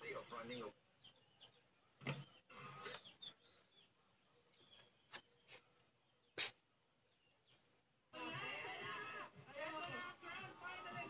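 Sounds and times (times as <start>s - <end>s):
faint bird chirps: 0.0s - 8.4s.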